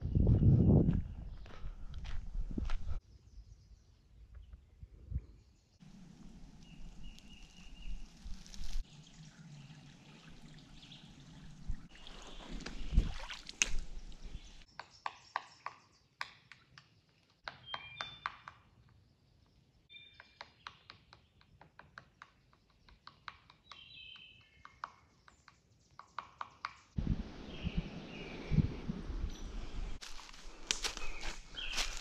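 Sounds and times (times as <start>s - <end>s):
creek water trickling: 5.8s - 14.7s.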